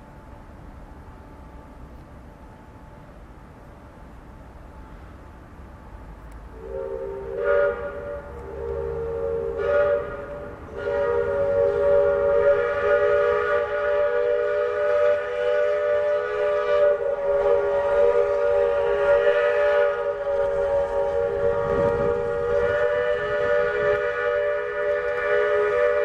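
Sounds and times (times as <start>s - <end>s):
steam whistle chord: 6.5s - 26.0s.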